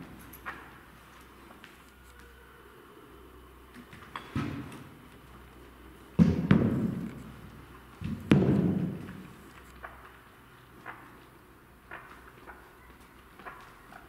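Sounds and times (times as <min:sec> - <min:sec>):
heavy dull thuds echoing: 0:08.0 - 0:09.2.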